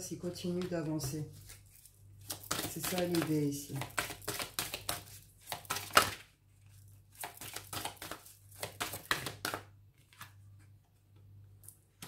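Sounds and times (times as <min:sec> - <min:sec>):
cards being shuffled: 0:01.4 - 0:06.3, 0:07.1 - 0:10.4.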